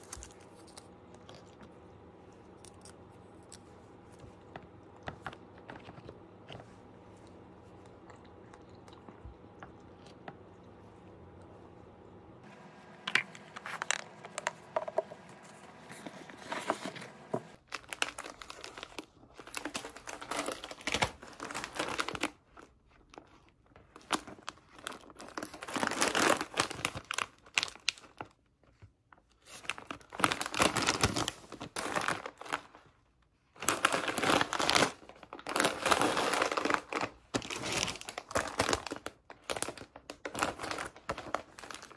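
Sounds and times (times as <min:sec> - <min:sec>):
plastic snack bags crinkling: 0:00.0 - 0:06.7, 0:13.1 - 0:41.9
faint steady hum: 0:00.0 - 0:24.6.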